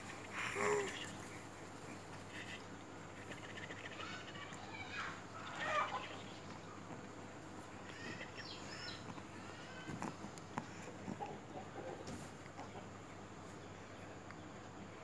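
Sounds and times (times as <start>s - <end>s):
baby cooing: 0.1s - 1.2s.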